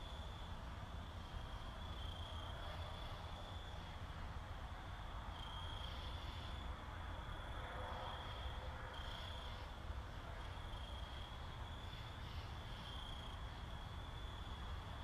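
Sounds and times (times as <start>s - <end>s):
low room noise rumble: 0.0s - 15.0s
cricket trilling: 4.6s - 15.0s.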